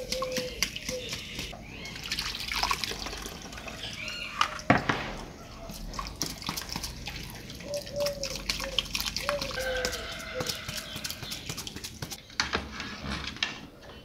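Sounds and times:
liquid splashing and dripping: 0.0 - 12.2
sauce poured through strainer: 5.7 - 12.1.

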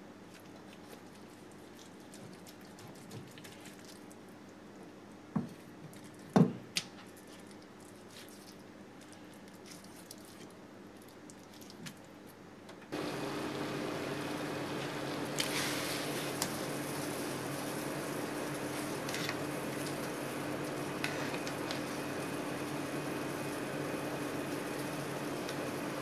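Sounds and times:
water boiling and bubbling: 12.9 - 26.0.

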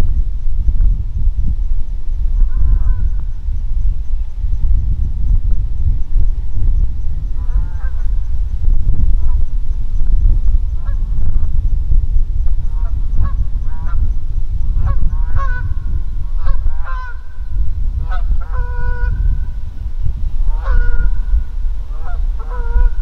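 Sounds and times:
wind rumble on microphone: 0.0 - 23.0
geese honking: 14.8 - 15.8, 16.4 - 17.3, 18.0 - 19.3, 20.5 - 21.3, 21.9 - 23.0.

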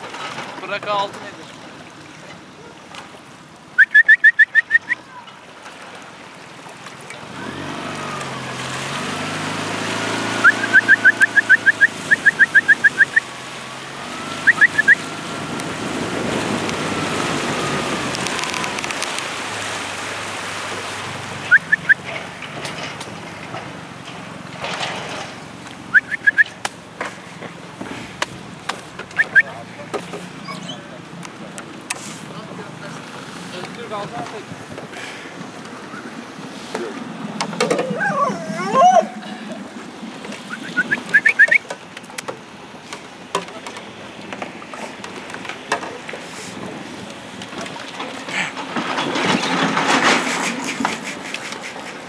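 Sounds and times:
boat motor running: 6.1 - 52.0
dog yelping: 21.5 - 22.0, 25.9 - 26.5.

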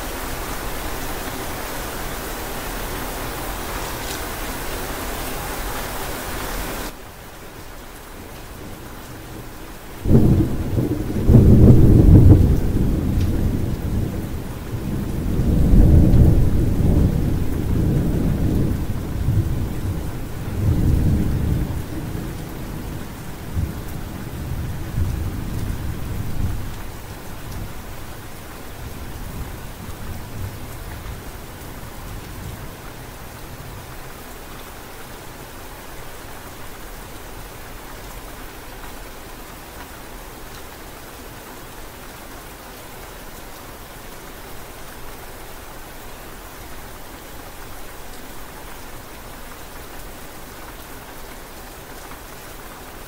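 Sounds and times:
steady rain falling: 0.0 - 53.0
thunder rumbling: 10.0 - 26.8.

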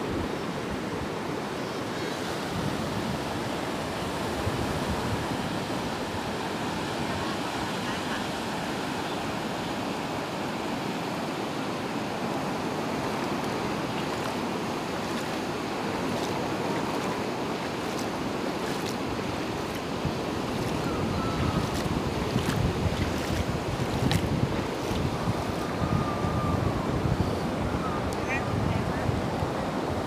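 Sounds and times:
sea surf breaking on beach: 0.0 - 30.0
wind buffeting microphone: 13.1 - 30.0.

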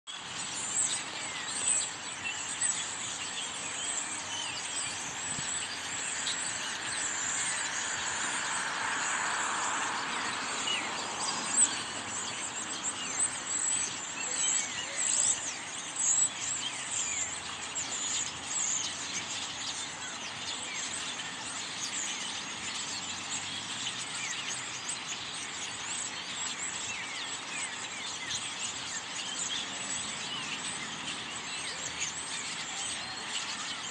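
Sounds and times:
flock of birds chirping: 0.1 - 33.9
passing vehicle: 5.8 - 12.9.

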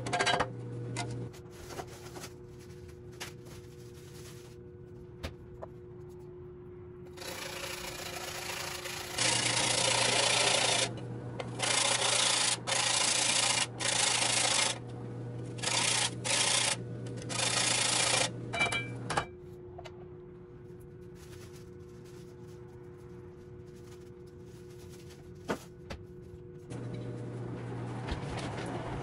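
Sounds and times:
harsh grinding: 7.2 - 18.5
small motor humming: 7.2 - 19.1.

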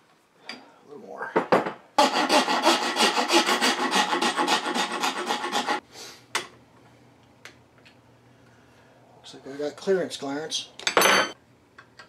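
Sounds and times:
round file rasping in wood: 2.0 - 5.8.

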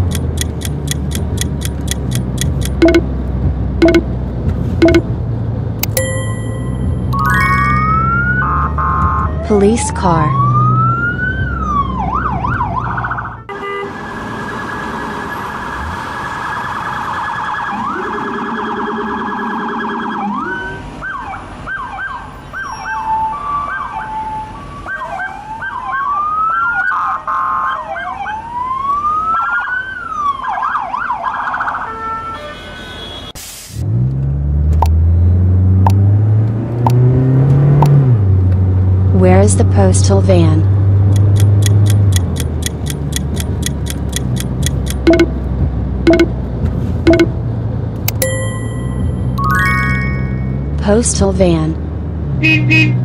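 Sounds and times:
police siren wailing and yelping: 7.4 - 13.4, 14.1 - 31.9
car engine revving: 33.9 - 39.2.

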